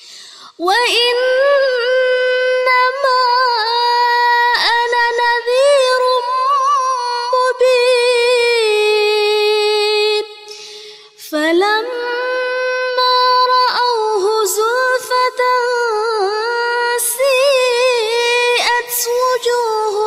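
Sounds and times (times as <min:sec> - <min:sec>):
quick breath: 0:00.0 - 0:00.6, 0:10.5 - 0:11.2.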